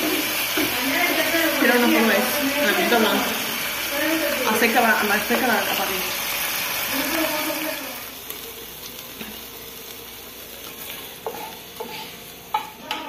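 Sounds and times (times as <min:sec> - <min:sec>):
vegetables sizzling in oil: 0:00.0 - 0:13.0
metal spoon scraping a pan: 0:10.8 - 0:13.0.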